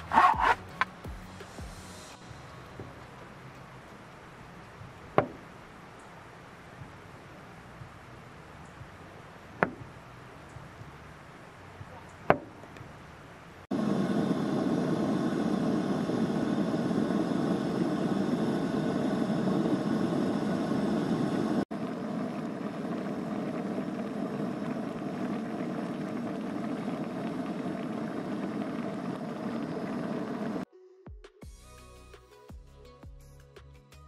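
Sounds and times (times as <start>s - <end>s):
gas burner running: 13.7s - 30.7s.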